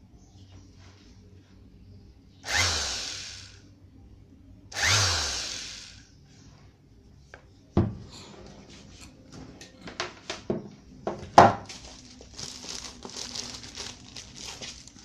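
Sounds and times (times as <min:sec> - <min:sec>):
orbital sander buzzing: 0:02.4 - 0:03.6, 0:04.8 - 0:06.0.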